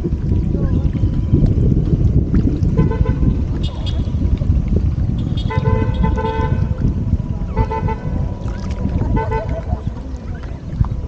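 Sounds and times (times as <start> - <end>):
steady low rumble: 0.0 - 11.0
horn honking: 2.8 - 4.2, 5.2 - 6.8, 7.5 - 8.3.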